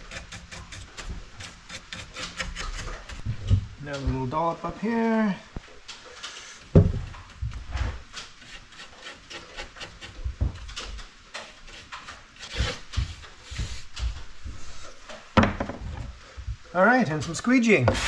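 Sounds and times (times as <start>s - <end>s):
bristle brush scrubbing wood: 0.0s - 3.3s, 7.9s - 10.7s, 11.4s - 15.0s, 16.7s - 18.0s
dull knocks of wooden panel: 6.7s - 7.9s, 15.4s - 16.6s.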